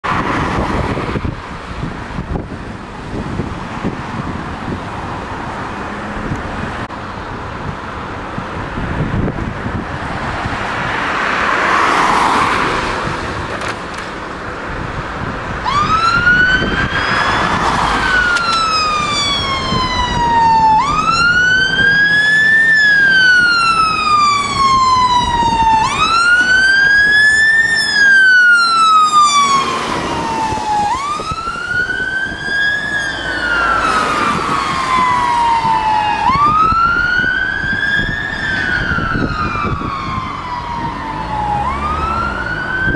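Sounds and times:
road traffic noise: 0.0s - 42.9s
car swishing by: 10.1s - 13.5s
fire engine siren wailing: 15.2s - 42.9s.

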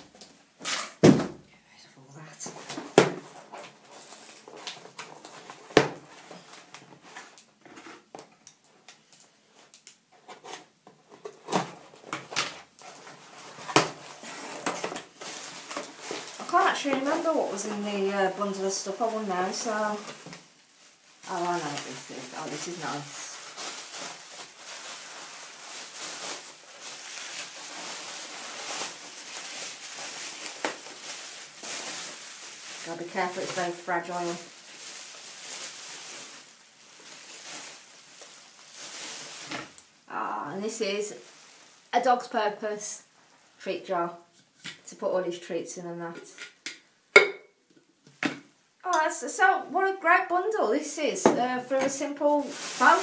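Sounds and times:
bubble wrap crinkling: 0.0s - 1.1s, 2.5s - 42.3s, 51.7s - 53.0s
cardboard box rustling and crinkling: 10.2s - 18.2s, 52.3s - 53.0s.

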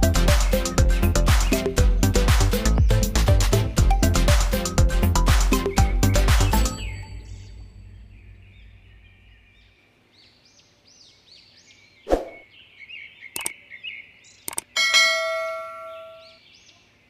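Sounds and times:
faint bird chirps: 5.6s - 14.7s
mouse clicks: 13.4s - 13.6s, 14.4s - 14.7s.

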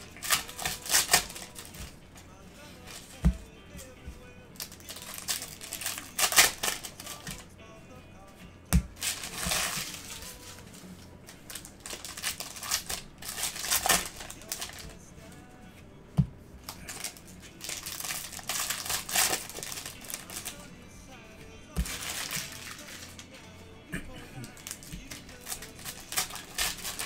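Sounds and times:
foil wrappers crinkling and tearing: 0.0s - 2.0s, 4.6s - 7.5s, 8.9s - 15.0s, 16.7s - 20.7s, 21.7s - 23.3s, 24.4s - 27.0s.

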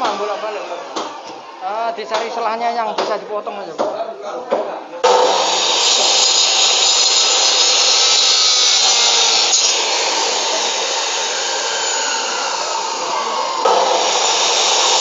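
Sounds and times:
electric saw cutting bone: 5.0s - 15.0s.

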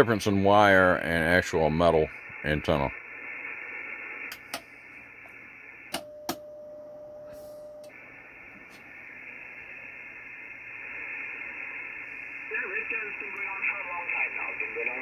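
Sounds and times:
radio band noise hissing: 0.0s - 6.0s, 7.3s - 15.0s
steady single tone: 5.9s - 8.0s.

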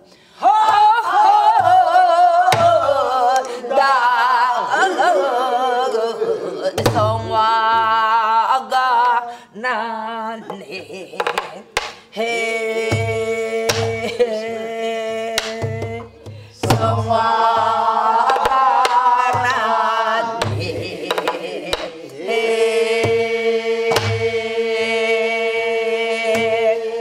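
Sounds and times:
hand-struck drum thumps: 15.4s - 17.8s, 23.9s - 24.2s.

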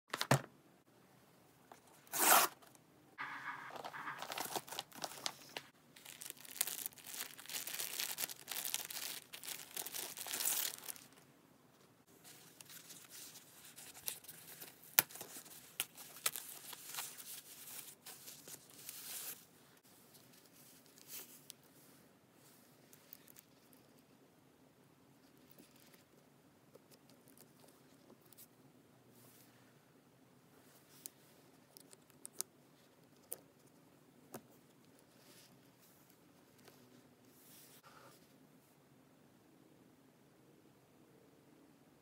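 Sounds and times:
plastic crinkling and rustling: 3.7s - 11.2s
packaging ripping: 3.9s - 11.2s.

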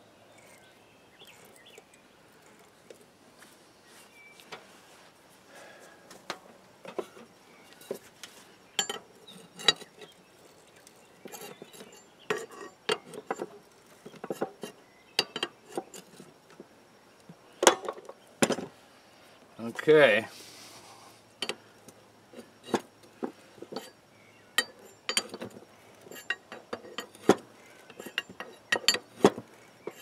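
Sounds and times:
steel hand tools clinking: 8.8s - 10.1s, 24.6s - 30.0s
metallic knocks: 24.6s - 30.0s.

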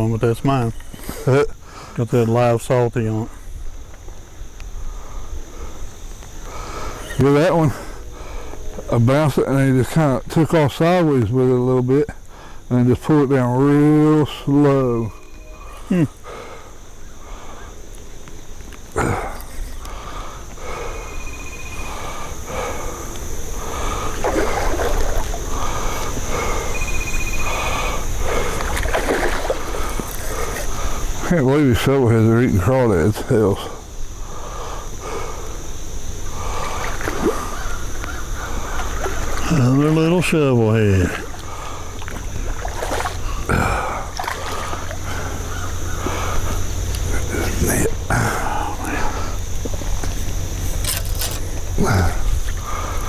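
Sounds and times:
fish splashing in water: 23.6s - 26.7s, 27.4s - 30.8s, 36.4s - 39.5s, 41.1s - 46.5s.

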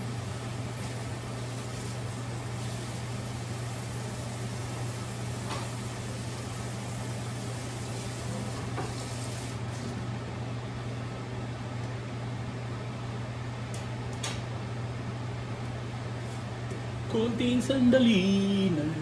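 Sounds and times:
pan simmering hiss: 0.0s - 9.9s.

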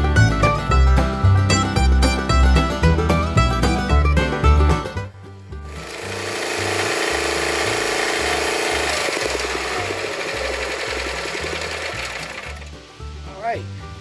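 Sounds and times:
log splitter engine running: 0.0s - 13.4s
log crackling: 5.6s - 13.8s
hydraulic whine: 5.7s - 12.8s.

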